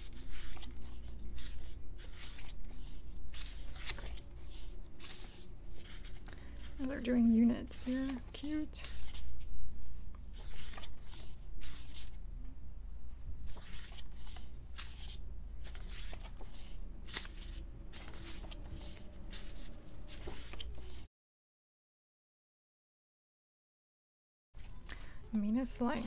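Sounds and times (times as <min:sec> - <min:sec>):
pages rustling and flapping: 0:00.0 - 0:12.2, 0:13.4 - 0:21.1.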